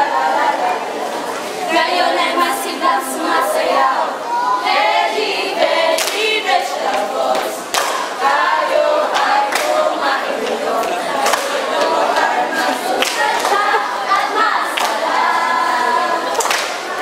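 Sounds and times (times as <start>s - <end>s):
young voices singing together: 0.0s - 17.0s
hand claps: 7.4s - 8.0s, 9.1s - 9.8s, 10.4s - 11.9s, 13.0s - 13.6s, 14.8s - 15.0s, 16.3s - 17.0s.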